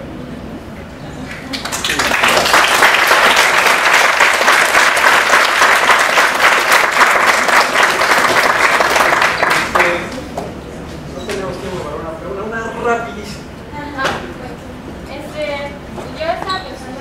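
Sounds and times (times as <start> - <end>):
audience applauding: 1.3 - 10.3.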